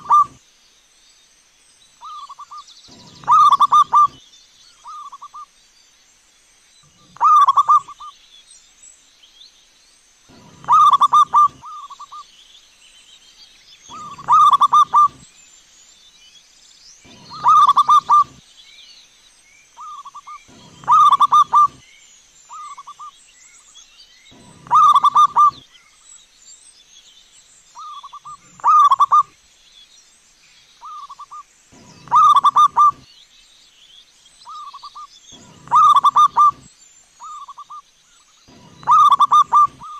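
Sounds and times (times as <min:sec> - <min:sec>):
dove cooing: 0:00.0 - 0:00.4, 0:02.0 - 0:04.2, 0:07.0 - 0:08.1, 0:10.3 - 0:12.2, 0:13.9 - 0:15.2, 0:17.1 - 0:18.4, 0:19.8 - 0:21.8, 0:24.4 - 0:25.6, 0:27.8 - 0:29.3, 0:30.9 - 0:33.0, 0:35.4 - 0:37.7, 0:38.5 - 0:39.9
small birds chirping: 0:00.0 - 0:39.9.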